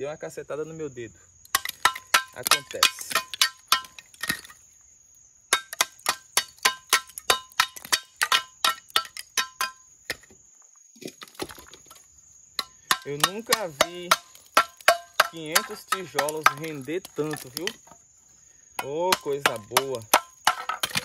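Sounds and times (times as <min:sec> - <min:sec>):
trowel clinking on bricks: 0:01.5 - 0:04.6, 0:05.5 - 0:10.3, 0:12.6 - 0:18.0, 0:18.8 - 0:21.0.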